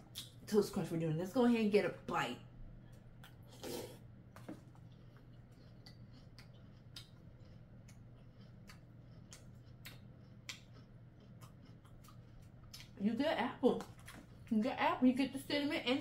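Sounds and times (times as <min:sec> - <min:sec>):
low steady hum: 0:00.0 - 0:16.0
chewing: 0:02.9 - 0:13.0, 0:13.8 - 0:14.5.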